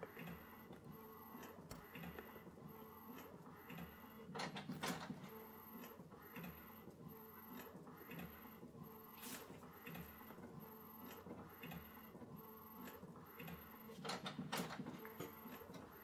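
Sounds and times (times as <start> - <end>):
printer clattering: 4.3 - 5.2.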